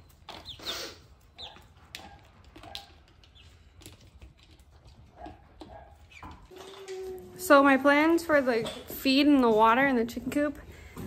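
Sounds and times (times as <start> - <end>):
beaks pecking: 0.0 - 6.5
chicks peeping: 0.2 - 3.6.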